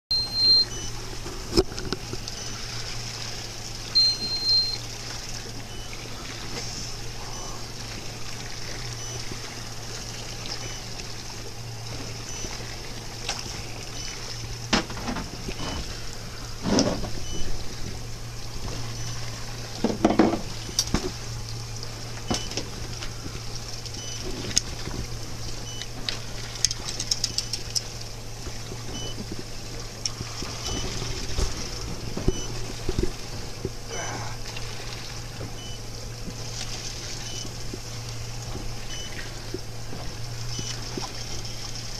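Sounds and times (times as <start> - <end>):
faint short beeps: 0.1 - 1.0, 2.3 - 2.7, 3.9 - 4.8, 5.7 - 6.0, 7.2 - 7.7, 9.0 - 9.3, 10.5 - 11.0, 12.2 - 12.6, 13.9 - 14.3, 17.2 - 17.5, 18.8 - 19.3, 22.3 - 22.6, 24.0 - 24.3, 28.9 - 29.2, 30.1 - 31.0, 32.3 - 32.6, 35.6 - 35.8, 37.2 - 39.4, 40.5 - 40.8
boat engine hum: 0.1 - 41.9
water washing against hull: 0.1 - 41.9
knocks and thumps: 14.7 - 15.9, 19.8 - 21.2.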